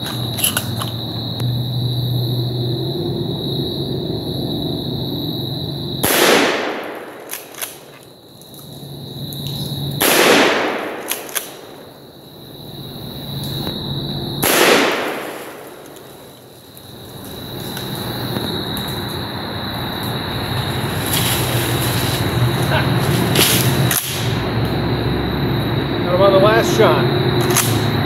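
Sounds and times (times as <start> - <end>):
shotgun shots with echo: 6.0 - 7.5, 10.0 - 11.8, 14.4 - 15.8.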